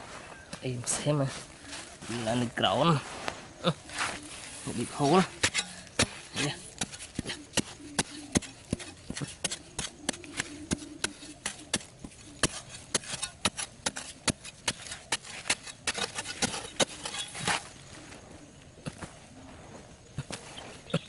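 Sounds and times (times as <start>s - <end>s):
metal blade chopping dry soil: 5.0s - 17.7s.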